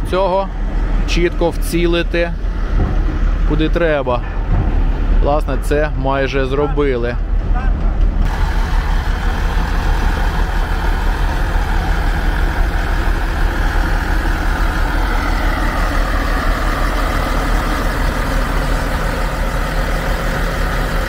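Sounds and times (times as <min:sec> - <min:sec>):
heavy diesel engine running: 0:00.0 - 0:21.0.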